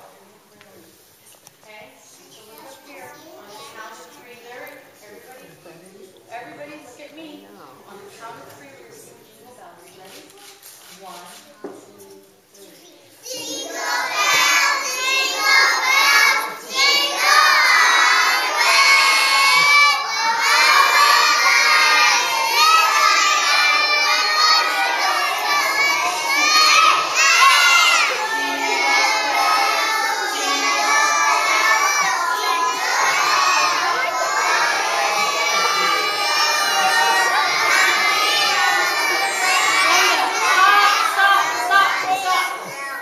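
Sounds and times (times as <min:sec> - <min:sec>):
children singing in chorus: 0:13.2 - 0:43.0.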